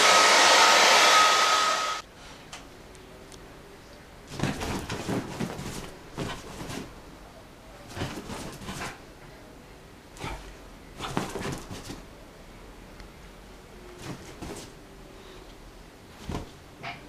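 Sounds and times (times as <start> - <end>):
dog rolling on bedding: 4.3 - 6.9, 7.9 - 9.0.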